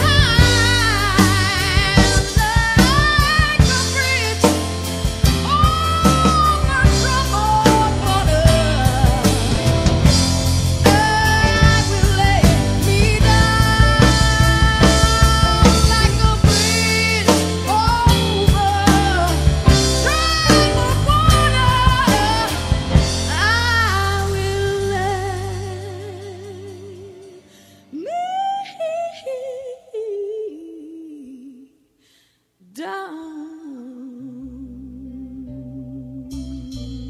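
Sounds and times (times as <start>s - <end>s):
lone voice singing with vibrato: 0.0s - 10.2s, 10.8s - 31.7s
song with drums and singing: 0.0s - 26.7s.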